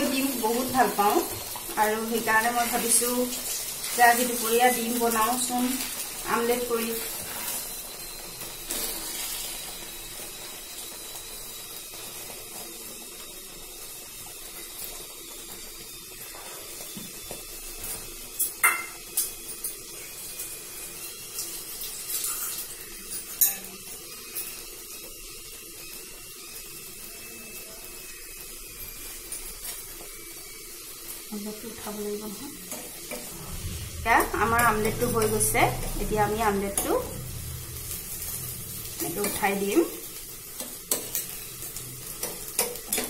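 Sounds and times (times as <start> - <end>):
faint hiss from pan: 0.0 - 43.0
metal utensils clinking: 40.5 - 43.0.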